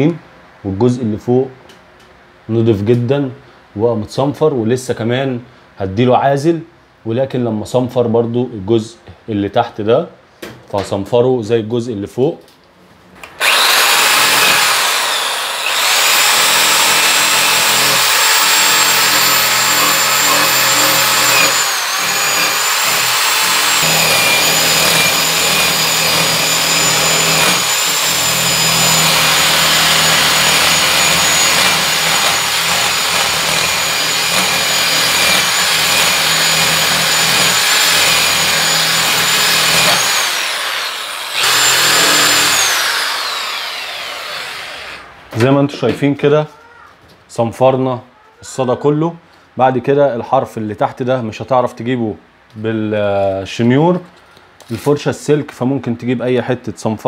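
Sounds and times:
electric drill whining: 13.3 - 45.1.

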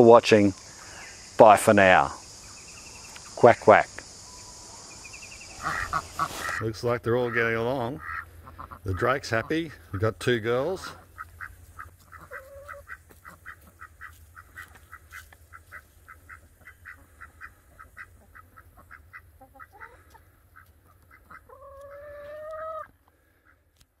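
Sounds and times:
ducks quacking: 5.4 - 23.7.

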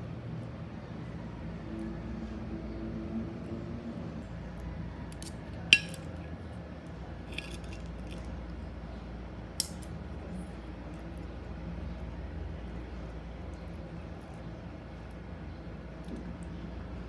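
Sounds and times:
hard objects clinking: 5.1 - 6.3, 7.2 - 8.4, 9.6 - 9.9.

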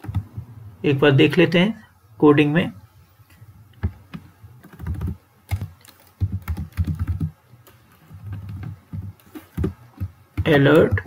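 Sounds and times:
typing on a computer keyboard: 0.0 - 0.3, 3.8 - 11.0.

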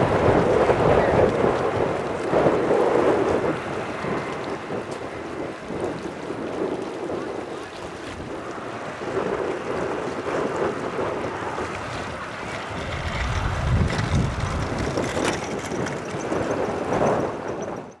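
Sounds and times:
wind buffeting microphone: 0.0 - 18.0.

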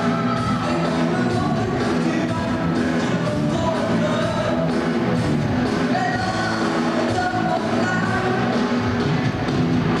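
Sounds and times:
person singing: 0.0 - 4.8, 5.8 - 8.7
drums: 0.0 - 10.0
electric guitar: 0.0 - 10.0
live rock band playing: 0.0 - 10.0.

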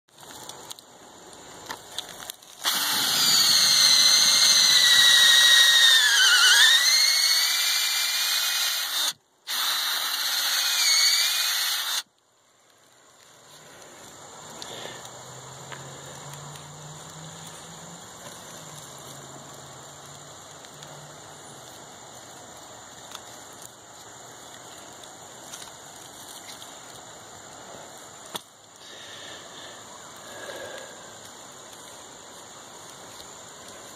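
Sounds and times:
low background noise: 0.1 - 33.9
cordless drill boring into wood: 2.6 - 12.1.

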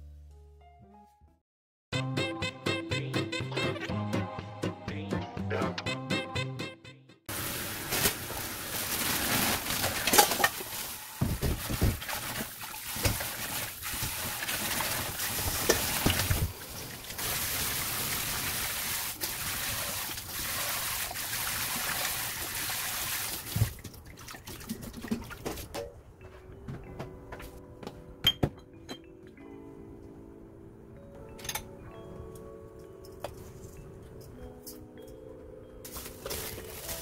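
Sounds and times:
tap water pouring into basin: 11.7 - 25.5.

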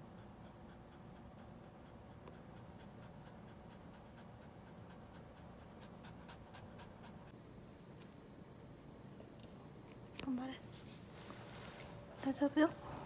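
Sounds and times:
dog panting rapidly: 0.0 - 7.4.

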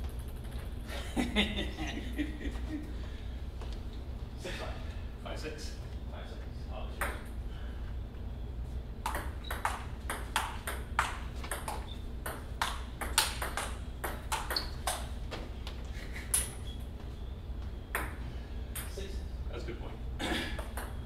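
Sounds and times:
table tennis ball clicking: 9.0 - 15.1.

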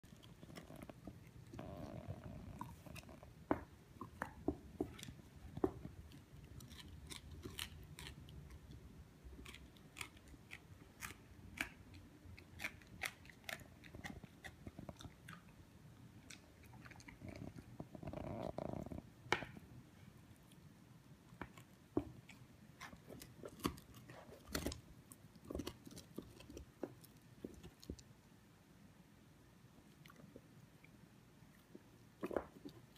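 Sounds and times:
dog chewing a stick: 0.0 - 15.6.

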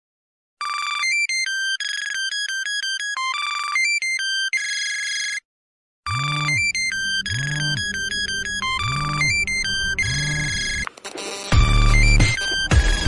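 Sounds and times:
electronic ringtone melody: 6.1 - 13.0.

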